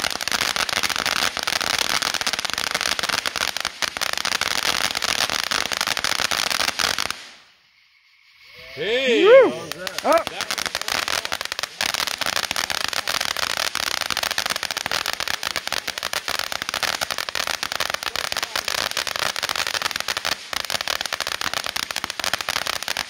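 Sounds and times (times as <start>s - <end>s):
firework crackling pops: 0.0s - 7.6s, 9.2s - 23.0s.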